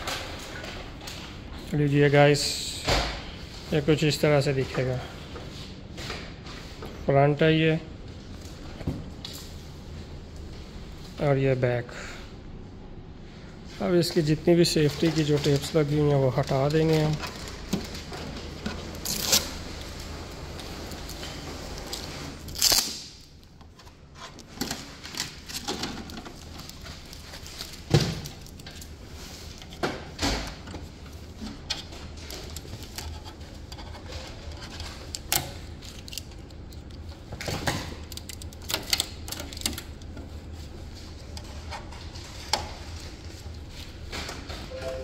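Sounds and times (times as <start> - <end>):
packing tape ripping: 18.9 - 19.7, 21.9 - 23.4.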